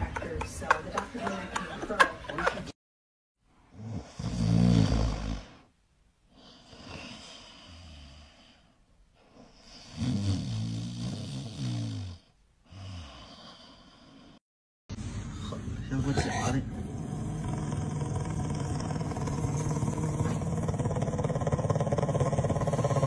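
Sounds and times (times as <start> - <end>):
dog snoring: 3.7 - 5.7, 6.4 - 8.6, 9.4 - 14.4, 16.2 - 23.0.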